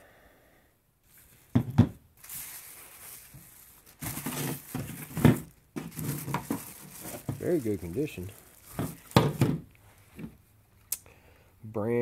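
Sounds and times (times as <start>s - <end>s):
plastic housings knocking on table: 1.6s - 2.0s
plastic wrapping crinkling: 2.2s - 10.0s.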